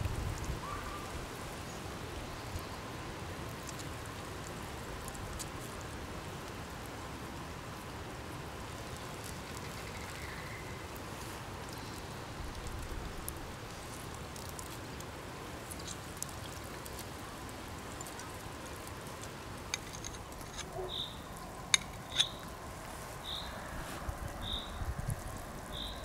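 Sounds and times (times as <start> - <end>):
campfire crackling and popping: 3.2 - 26.0
bird chirps: 20.7 - 21.3, 23.2 - 23.6, 24.4 - 24.8, 25.7 - 26.0.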